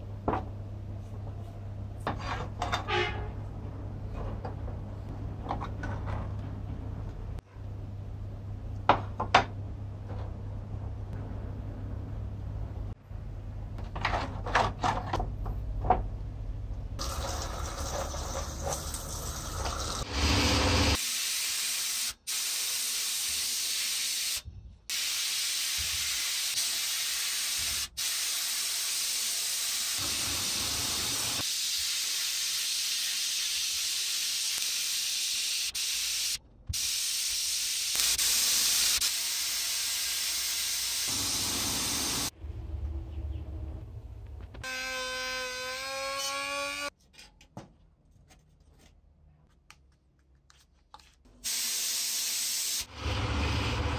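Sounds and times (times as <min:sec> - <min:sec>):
sandblasting gun hissing: 0:20.3 - 0:42.3, 0:51.4 - 0:52.9.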